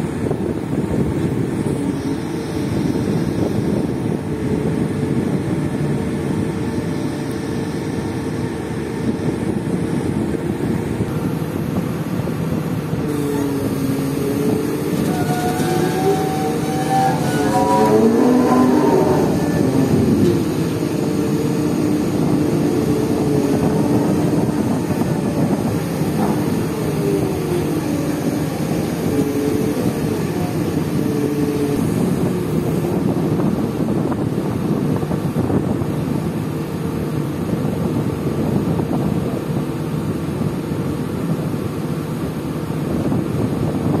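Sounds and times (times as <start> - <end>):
diesel machinery running: 0.0 - 44.0
wavering whining tone: 0.2 - 11.7, 12.9 - 33.9.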